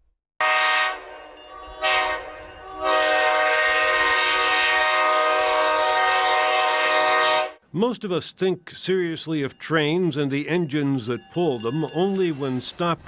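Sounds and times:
locomotive air horn blasts: 0.4s - 7.6s.

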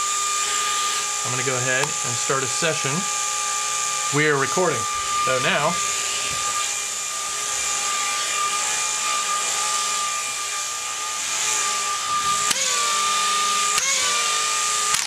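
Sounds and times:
gyroscope ball whining: 11.2s - 15.0s.

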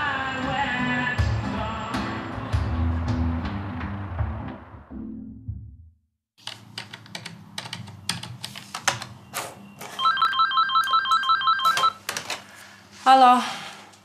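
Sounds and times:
telephone ringing: 9.8s - 12.0s.

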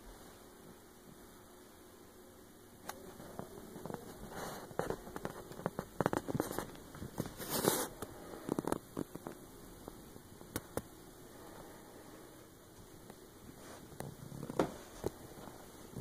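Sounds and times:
faint steady hum: 0.0s - 16.0s
light clicks and crackles: 8.0s - 9.5s.

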